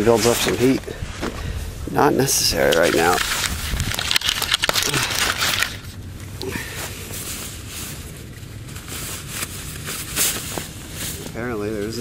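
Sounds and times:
nylon jacket rustling: 0:02.0 - 0:05.9, 0:06.6 - 0:12.0.

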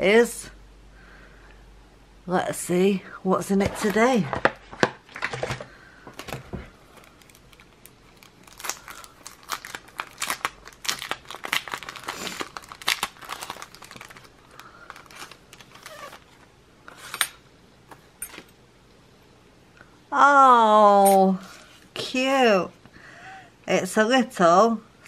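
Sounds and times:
paper tearing and crinkling: 0:07.0 - 0:17.3.

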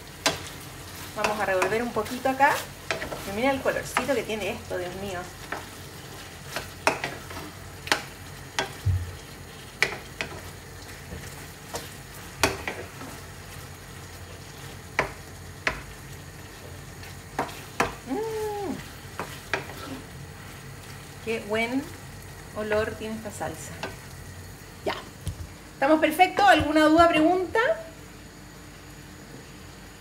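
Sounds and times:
meat sizzling in a frying pan: 0:00.0 - 0:27.5
wooden spatula scraping a pan: 0:00.3 - 0:04.5, 0:17.4 - 0:18.0, 0:19.2 - 0:20.1.

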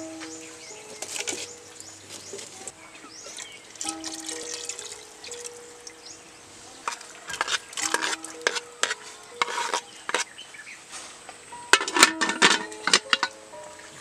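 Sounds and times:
lid clinking on pot: 0:06.8 - 0:10.3, 0:11.7 - 0:13.4
metal ladle stirring in pot: 0:06.8 - 0:10.3, 0:11.7 - 0:13.4.

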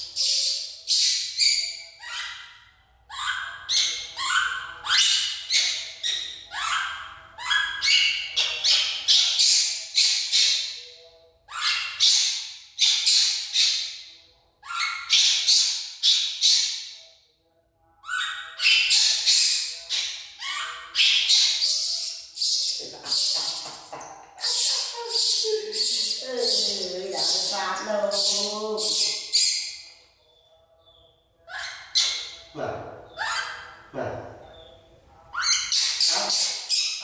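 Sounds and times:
baby monkey screaming: 0:00.0 - 0:02.5, 0:03.1 - 0:10.7, 0:11.5 - 0:13.9, 0:14.6 - 0:16.8, 0:18.0 - 0:23.8, 0:24.4 - 0:29.8, 0:31.5 - 0:32.3, 0:33.1 - 0:33.8, 0:35.3 - 0:37.0.

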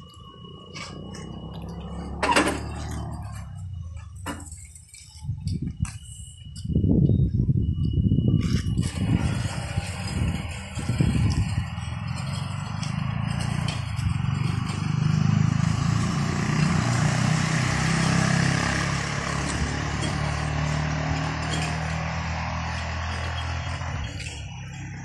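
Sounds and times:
electric motors humming: 0:08.4 - 0:25.0.

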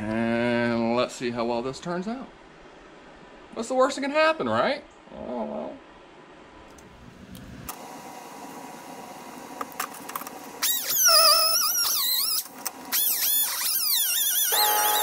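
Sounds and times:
cut-off wheel screeching whine: 0:10.6 - 0:15.0.

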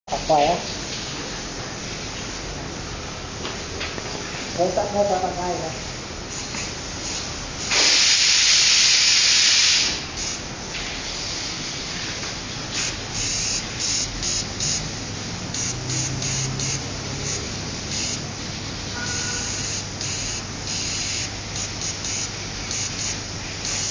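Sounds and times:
airbrush spraying hiss: 0:05.7 - 0:23.9.

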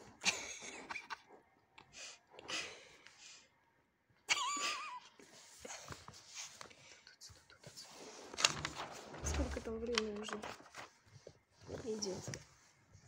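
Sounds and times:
stifled laughter: 0:00.2 - 0:01.4, 0:04.3 - 0:05.3.

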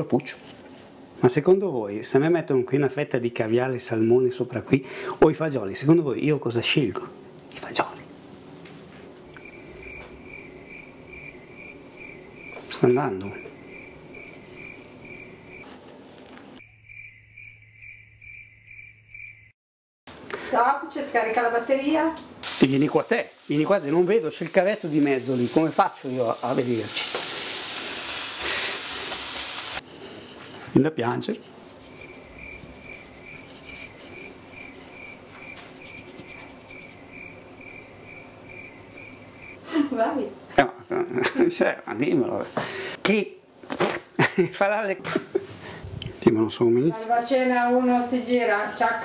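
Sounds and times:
cricket chirping: 0:09.2 - 0:15.7, 0:16.6 - 0:19.6, 0:31.8 - 0:39.6.

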